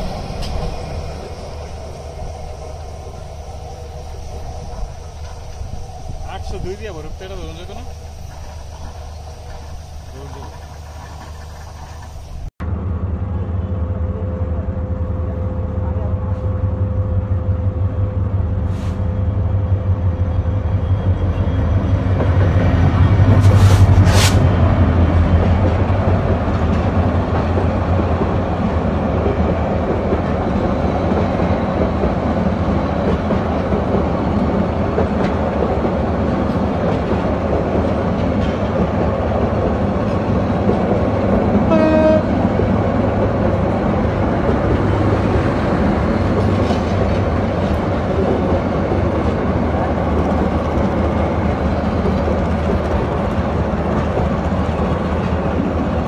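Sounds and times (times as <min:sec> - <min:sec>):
train wheels on rails: 0:00.0 - 0:12.5, 0:18.0 - 0:56.0
train horn blast: 0:41.6 - 0:42.5.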